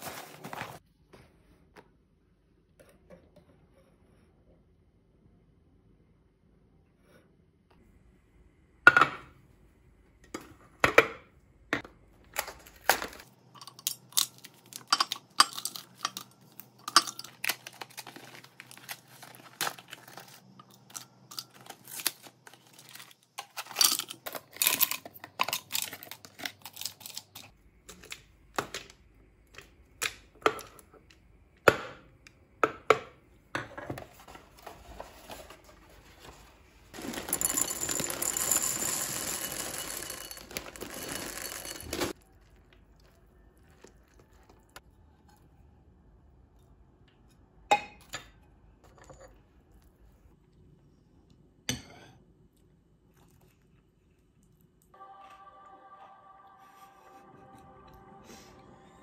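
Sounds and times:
capsules clinking into glass jar: 12.4 - 27.5, 37.0 - 42.2.

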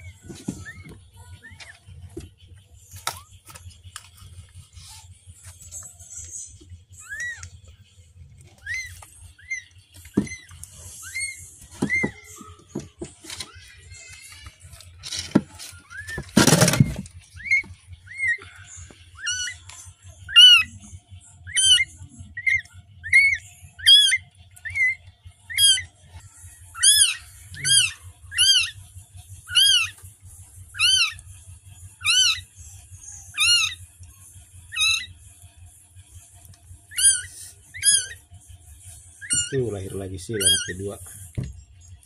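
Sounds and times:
newborn kitten mewing: 29.5 - 30.0, 40.4 - 40.8.

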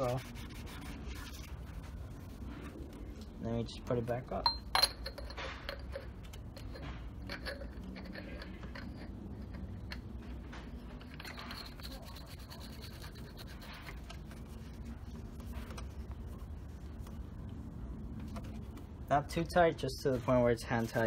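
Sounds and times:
metal threads scratchy rubbing: 0.0 - 3.4, 4.9 - 17.7
steady low hum: 0.0 - 21.0.

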